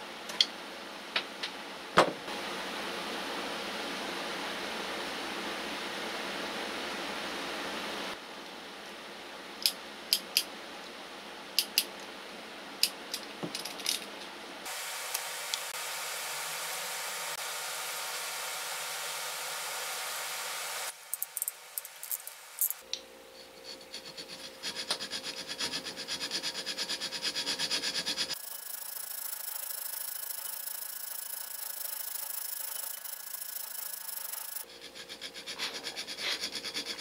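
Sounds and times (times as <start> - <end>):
hand file rasping on metal: 23.4 - 28.4, 34.6 - 37.0.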